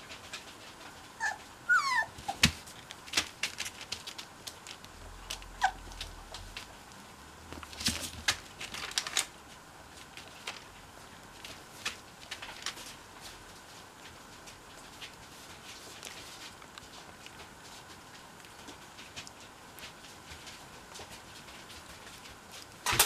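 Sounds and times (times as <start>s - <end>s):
soft clicks and rustling: 0.0s - 23.0s
puppies whimpering: 1.2s - 2.4s, 5.5s - 5.9s.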